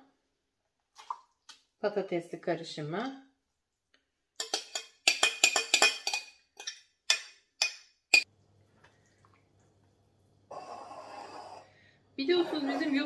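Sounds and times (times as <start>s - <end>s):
faint stirring: 8.2s - 13.0s.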